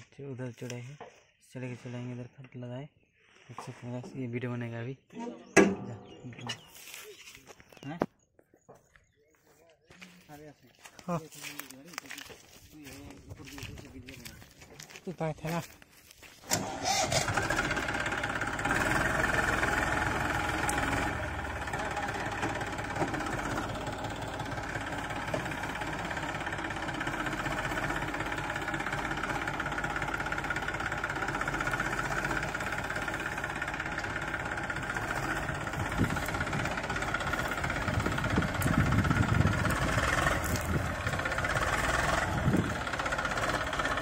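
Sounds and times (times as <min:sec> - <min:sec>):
tractor diesel engine knocking: 0:16.6 - 0:44.0.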